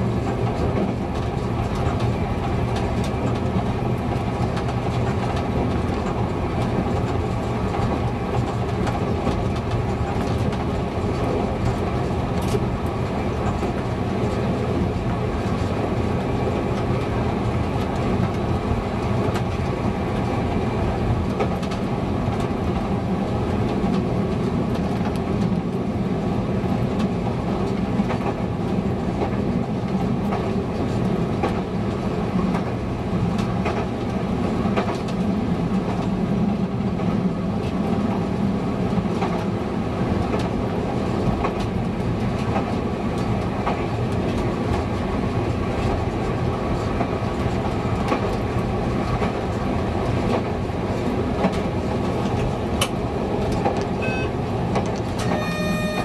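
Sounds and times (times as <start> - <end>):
train wheels clicking over rails: 26.7 - 56.0
diesel engine drone: 53.6 - 56.0.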